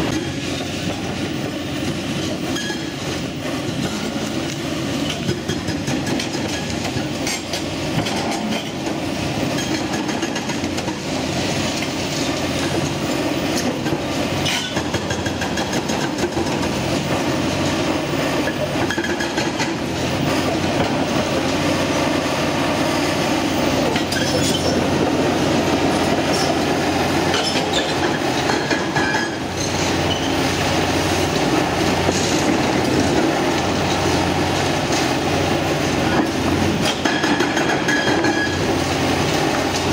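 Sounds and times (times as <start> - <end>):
diesel engine under load: 0.0 - 39.9
hydraulic breaker pounding concrete: 36.2 - 38.6.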